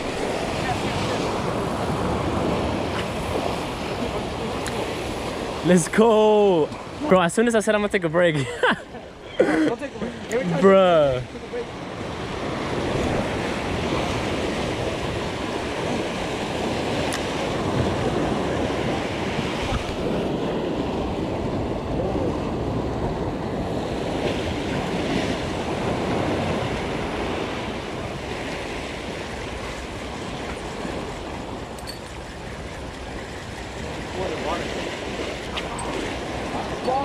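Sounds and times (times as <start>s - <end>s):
wind buffeting microphone: 0.0s - 5.6s, 9.1s - 37.0s
sea waves breaking on rocks: 0.0s - 8.3s, 9.6s - 37.0s.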